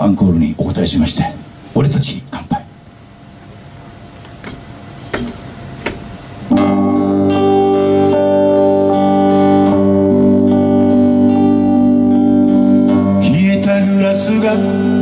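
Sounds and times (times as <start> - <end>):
strummed acoustic guitar chords: 4.4 - 15.0
electric guitar: 6.0 - 15.0.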